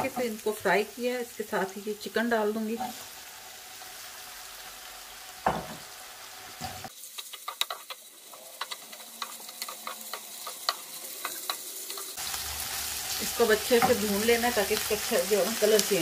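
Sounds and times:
chicken sizzling in hot oil: 0.0 - 16.0
wooden spoon scraping a pan: 6.6 - 14.4.

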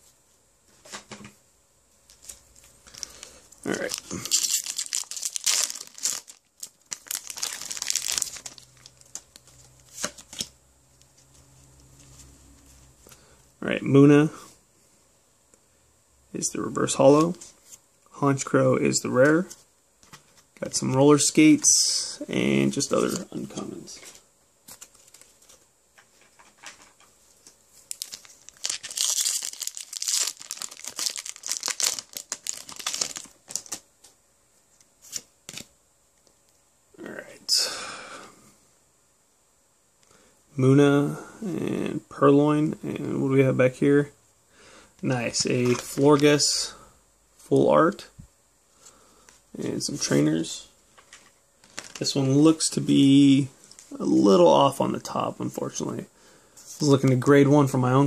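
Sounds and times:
foil wrapper crinkling: 2.1 - 10.5, 27.9 - 33.8, 51.0 - 52.1
foil wrapper ripping: 2.9 - 9.5, 27.9 - 33.8.

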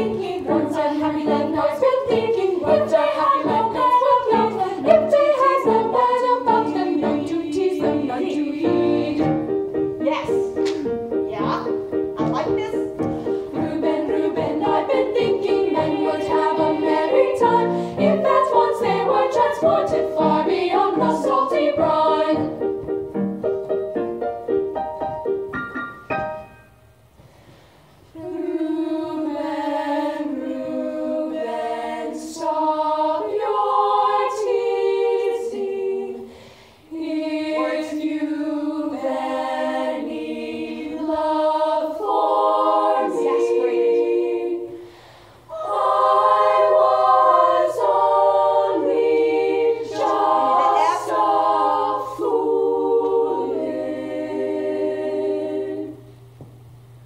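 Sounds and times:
girls' choir singing: 0.0 - 23.6, 28.1 - 56.2
singers breathing: 13.1 - 13.6, 17.6 - 18.0, 27.2 - 28.1, 36.2 - 36.9, 44.7 - 45.5.

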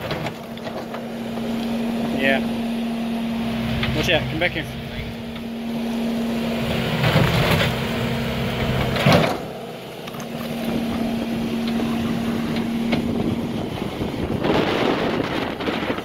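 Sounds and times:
loader engine droning: 0.0 - 16.0.

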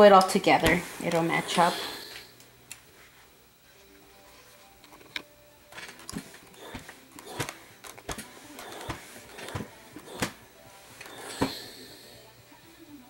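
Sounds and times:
iron rustling and scraping on fabric: 0.5 - 2.3, 6.2 - 11.9.

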